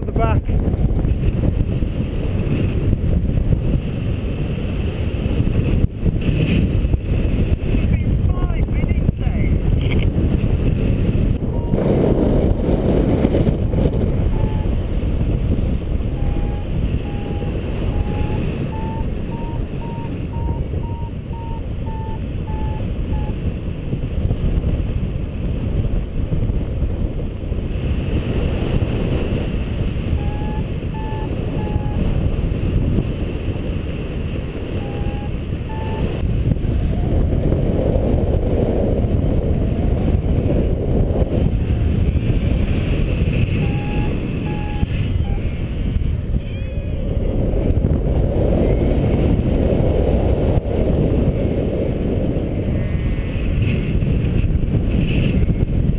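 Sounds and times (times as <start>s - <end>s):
wind rushing over microphone: 0.0s - 55.9s
variometer beeping: 11.4s - 12.5s, 14.2s - 14.8s, 16.0s - 23.4s, 30.1s - 32.3s, 34.7s - 36.3s, 43.3s - 45.7s.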